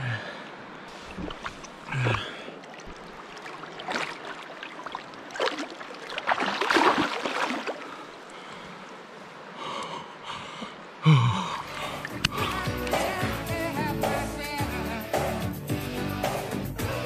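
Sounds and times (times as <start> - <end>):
water splashing: 0.0 - 9.6, 11.4 - 13.5.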